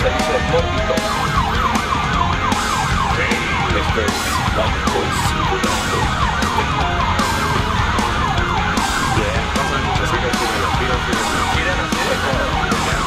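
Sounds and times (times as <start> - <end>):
ambulance siren yelp: 0.0 - 13.0.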